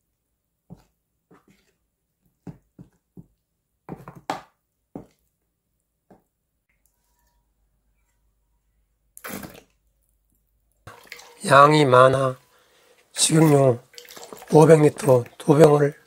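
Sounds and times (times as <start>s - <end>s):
oil trickling into wok: 13.8s - 14.6s.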